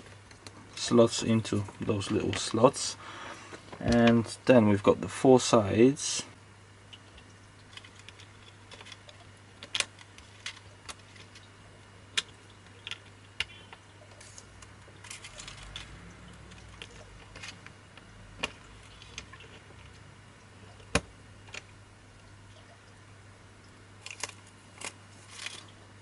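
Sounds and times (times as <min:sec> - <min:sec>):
soft rustling handling noise: 0:00.0 - 0:04.9, 0:24.0 - 0:25.8.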